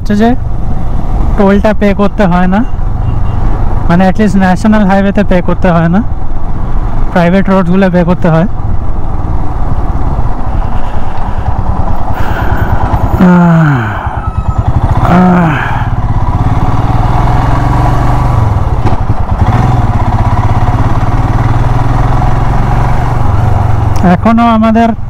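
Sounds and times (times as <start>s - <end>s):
motorcycle engine running: 8.4s - 25.0s.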